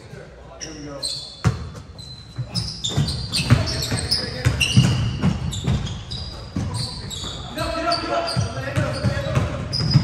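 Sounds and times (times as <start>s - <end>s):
sneakers squeaking: 0.0s - 10.0s
basketball bouncing on court: 1.4s - 1.8s, 2.4s - 7.5s, 8.3s - 10.0s.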